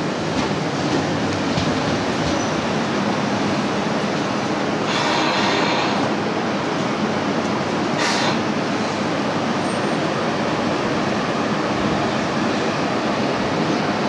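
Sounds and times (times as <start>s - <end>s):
electric train running noise: 0.0s - 14.0s
air hiss: 4.8s - 6.1s, 8.0s - 8.4s.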